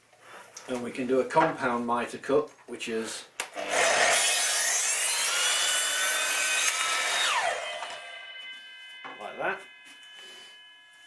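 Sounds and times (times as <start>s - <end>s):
mitre saw cutting wood: 3.6s - 10.7s
saw blade whine winding down: 3.6s - 11.0s.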